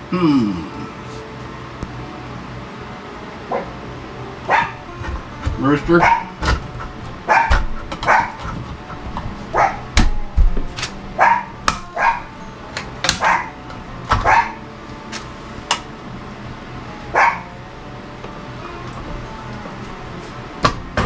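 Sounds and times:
dog barking: 4.5s - 4.8s, 6.0s - 6.5s, 7.3s - 8.6s, 9.5s - 9.9s, 11.2s - 12.3s, 13.2s - 13.5s, 14.2s - 14.6s, 17.1s - 17.5s.

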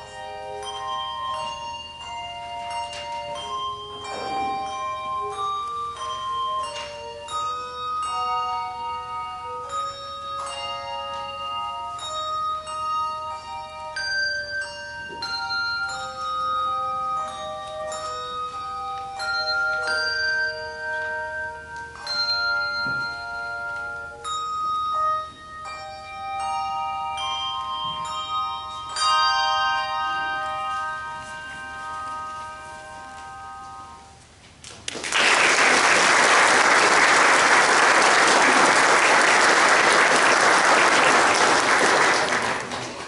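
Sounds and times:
handbells playing chords: 0.0s - 34.6s, 35.2s - 43.0s.

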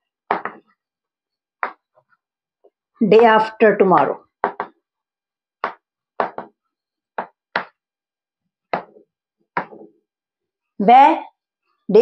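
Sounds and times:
chalk tapping on chalkboard: 5.6s - 6.6s.

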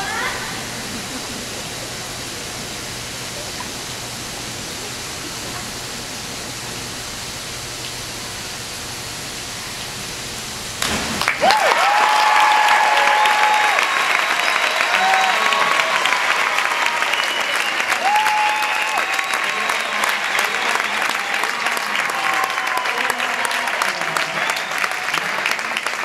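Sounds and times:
indoor pool hall hiss: 0.0s - 26.0s
diver splashing into water: 10.8s - 11.5s
crowd applauding: 10.8s - 26.0s
whistle: 17.0s - 18.0s.

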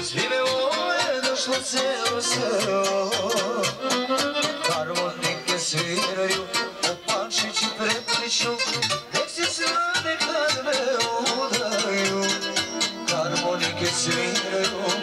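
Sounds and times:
folk dance band with keyboard: 0.0s - 15.0s.

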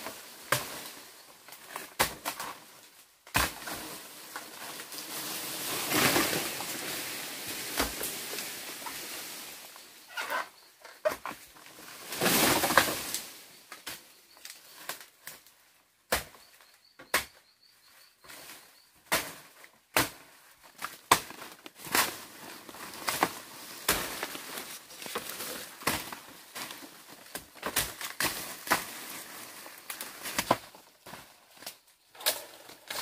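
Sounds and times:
rustling noise: 20.9s - 27.3s.

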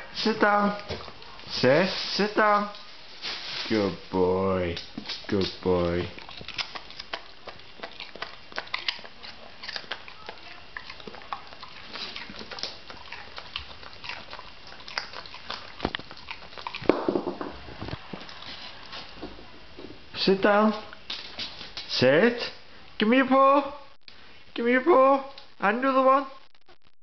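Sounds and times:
dog crunching carrot: 3.7s - 19.2s.

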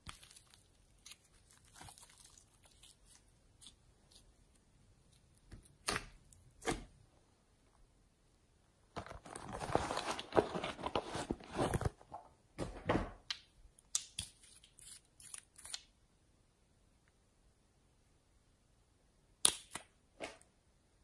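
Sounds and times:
slime crackling and crunching: 0.0s - 4.3s.

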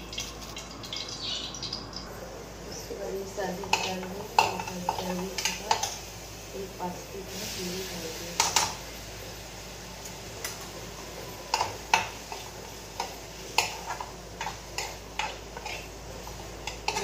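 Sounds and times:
metal spoon scraping frying pan: 11.5s - 17.0s.

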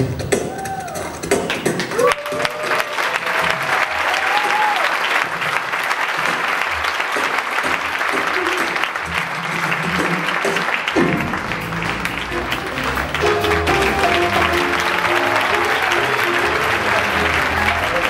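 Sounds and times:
audience applause: 0.5s - 18.0s
double bass notes: 11.0s - 18.0s
jazz band playing softly: 11.1s - 18.0s.

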